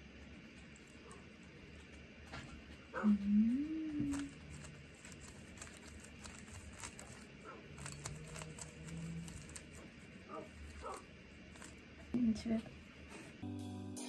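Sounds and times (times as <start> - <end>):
low voice humming: 3.0 - 4.5.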